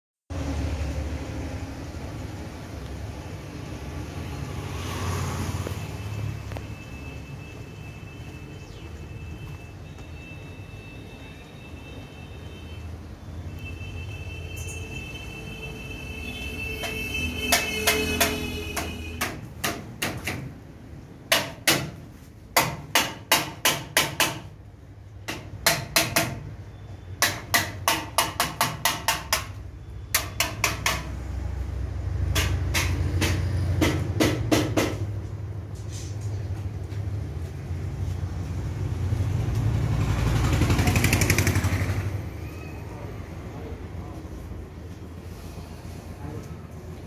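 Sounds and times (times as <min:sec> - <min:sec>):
hammer blows ringing: 0:16.3 - 0:20.3.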